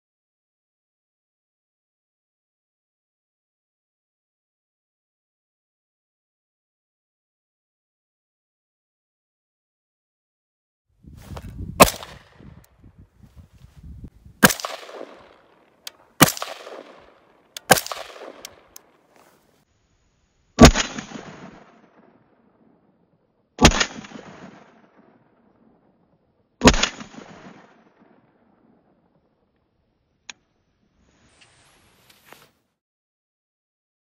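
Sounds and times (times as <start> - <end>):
rifle shots with echo: 11.8 - 12.4, 14.4 - 19.0, 20.6 - 22.7, 23.6 - 26.0, 26.6 - 29.2.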